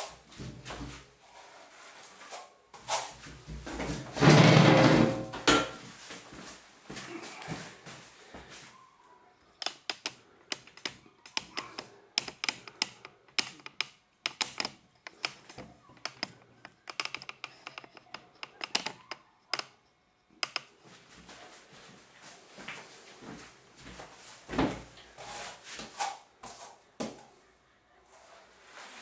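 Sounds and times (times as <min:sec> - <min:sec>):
sharp clicks and taps: 0:09.6 - 0:19.7.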